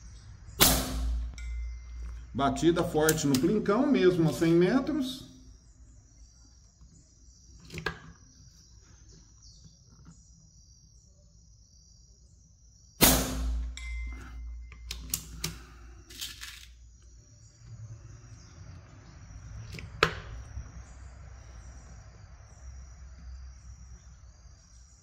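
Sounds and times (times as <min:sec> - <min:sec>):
air rifle shot: 0:00.6 - 0:01.3, 0:13.0 - 0:13.8
high metallic ring: 0:00.9 - 0:02.3, 0:13.4 - 0:14.8.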